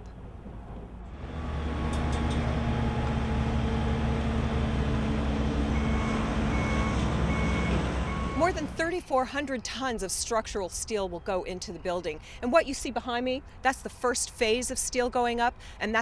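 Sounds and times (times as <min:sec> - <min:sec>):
diesel engine rumble: 0:00.0 - 0:09.2
reversing alarm beeps: 0:05.7 - 0:08.6.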